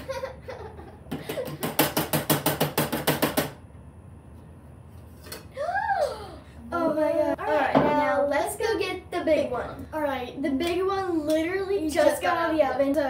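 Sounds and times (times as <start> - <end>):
girl saying ooh: 5.5 - 7.0.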